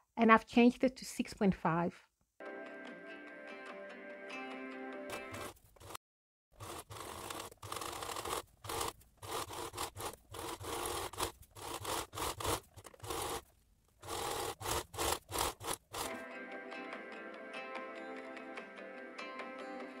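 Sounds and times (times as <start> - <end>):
sewing machine stitching: 5.1 - 6.0, 6.6 - 16.2.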